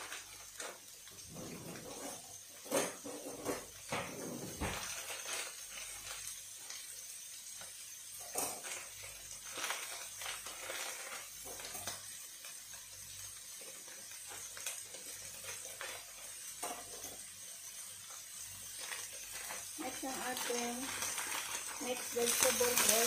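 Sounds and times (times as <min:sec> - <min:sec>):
onion and garlic sizzling in oil: 0:00.0 - 0:23.0
plastic packet rustling: 0:04.6 - 0:06.3, 0:08.6 - 0:12.1, 0:18.7 - 0:23.0.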